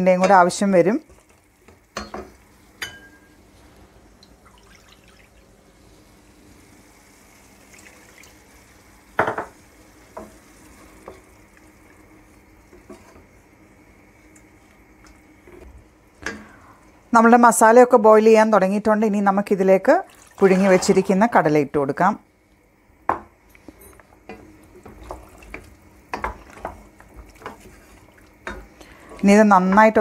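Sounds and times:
sauce sizzling in a pot: 0:00.4 - 0:04.4, 0:05.0 - 0:17.2, 0:24.0 - 0:30.0.

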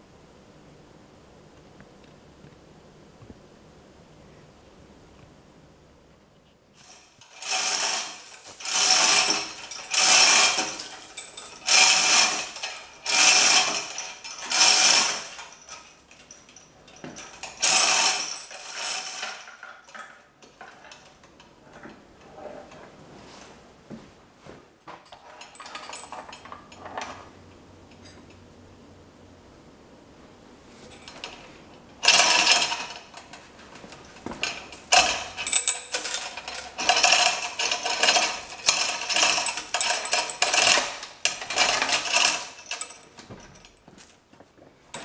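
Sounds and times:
hoist chain rattling: 0:06.8 - 0:21.2, 0:25.2 - 0:27.1, 0:32.0 - 0:43.8.

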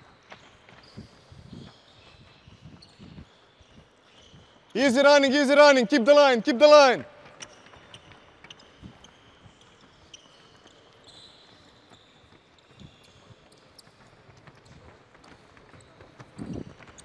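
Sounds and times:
sneaker squeaks: 0:00.0 - 0:05.3, 0:07.1 - 0:17.0.

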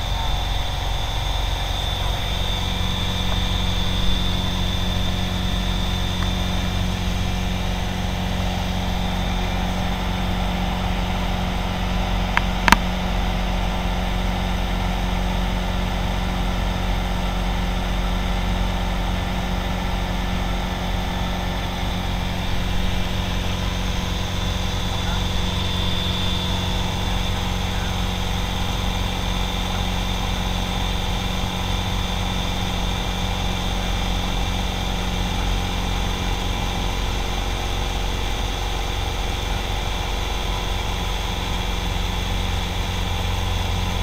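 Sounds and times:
aircraft engine and propeller: 0:00.0 - 0:44.0
sharp click: 0:12.4 - 0:12.9.

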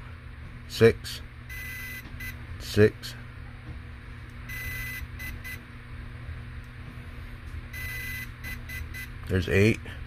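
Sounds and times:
electronic beeps: 0:04.5 - 0:05.6.

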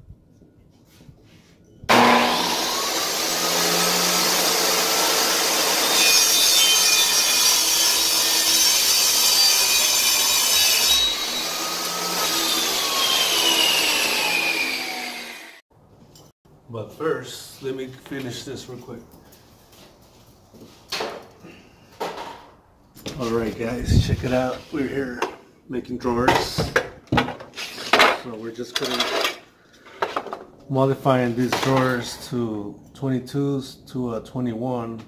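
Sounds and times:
table saw cutting wood: 0:01.9 - 0:15.6.

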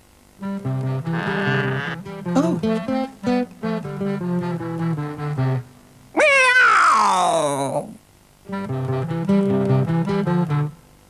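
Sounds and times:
angry cat screeching: 0:01.1 - 0:02.0, 0:06.2 - 0:07.6.

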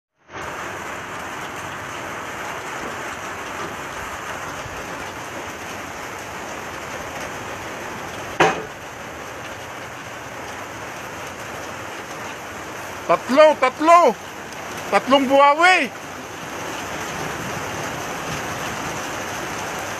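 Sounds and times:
sharp knock: 0:08.4 - 0:08.7.

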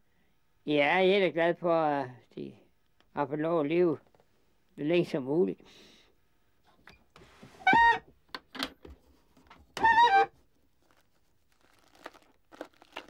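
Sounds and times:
wooden drawer squeaking: 0:07.6 - 0:08.0, 0:09.8 - 0:10.3
cloth rustling: 0:10.7 - 0:13.0.

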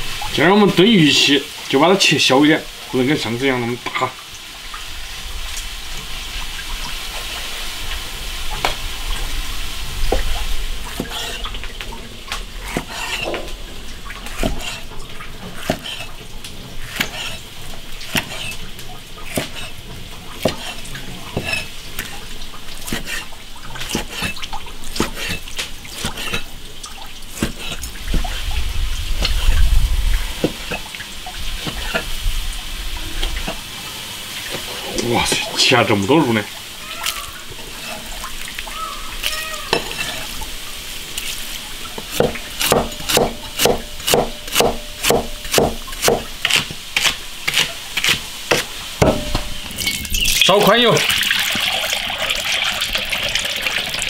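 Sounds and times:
steady hiss: 0:00.0 - 0:54.0
knife knocking on cutting board: 0:48.5 - 0:49.5.

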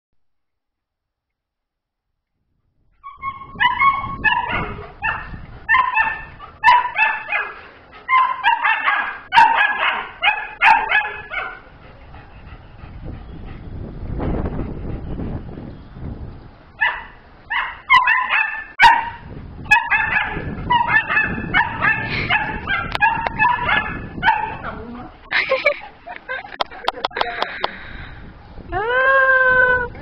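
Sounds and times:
dog barking excitedly: 0:03.0 - 0:11.7, 0:16.8 - 0:25.2.

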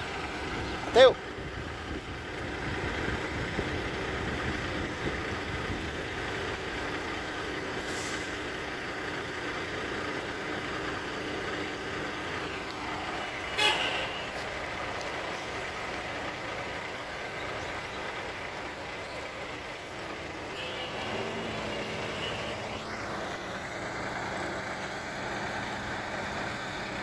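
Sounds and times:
diesel truck engines running: 0:00.0 - 0:27.0.

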